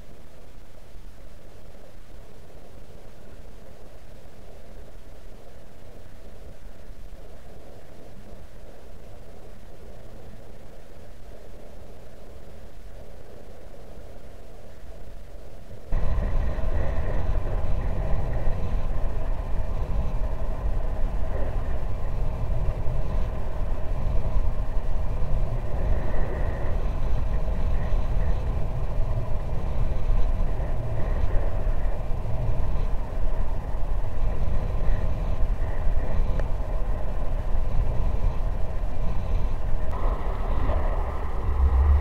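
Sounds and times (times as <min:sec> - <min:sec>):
faint steady hum tones: 0:00.0 - 0:42.0
wind buffeting microphone: 0:15.9 - 0:42.0.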